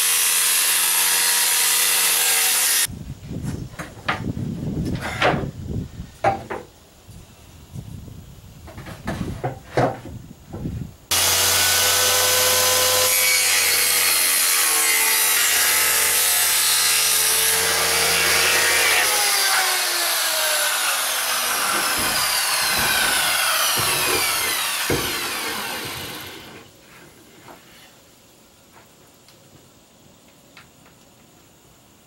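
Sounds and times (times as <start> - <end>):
circular saw cutting plywood: 0.0 - 2.9, 11.1 - 26.7
wood knocking: 21.2 - 26.4.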